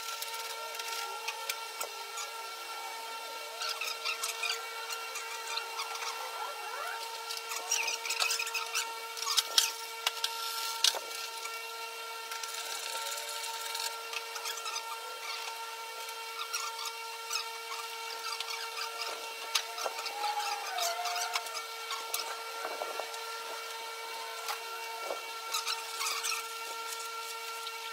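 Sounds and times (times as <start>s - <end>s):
steady high hum: 0.0s - 27.9s
hand tools clicking and scraping: 6.8s - 11.6s, 12.3s - 27.9s.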